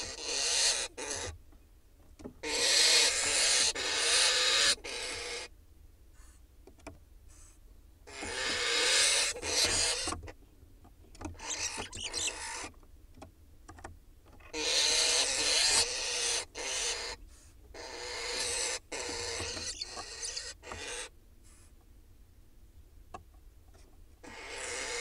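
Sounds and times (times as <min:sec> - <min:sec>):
owl hissing: 0:00.0 - 0:01.4, 0:02.4 - 0:05.5, 0:06.1 - 0:06.4, 0:07.3 - 0:10.2, 0:11.4 - 0:12.7, 0:14.5 - 0:21.8, 0:24.2 - 0:25.0.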